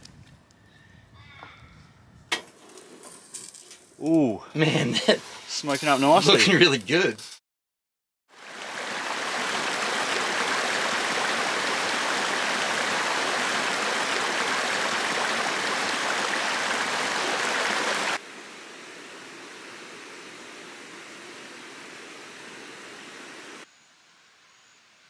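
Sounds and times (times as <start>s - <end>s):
creek water rushing over rocks: 8.3s - 22.0s
faint steady hiss: 8.4s - 25.0s.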